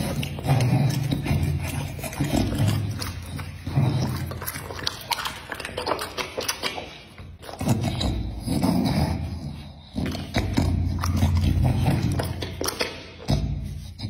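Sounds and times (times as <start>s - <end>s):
dog chewing with wet smacking: 0.0s - 14.0s
dog snorting breaths: 0.0s - 14.0s.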